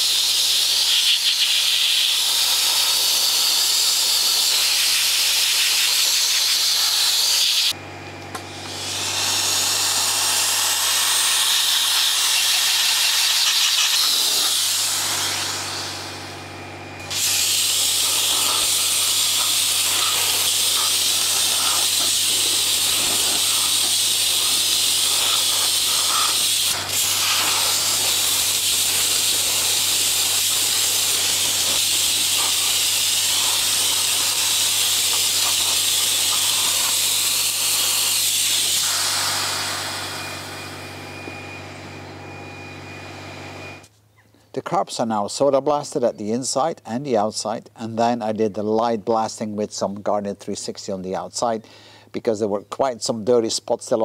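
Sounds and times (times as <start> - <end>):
blasting gun hissing: 0.0 - 7.8, 8.5 - 16.3, 17.0 - 40.9.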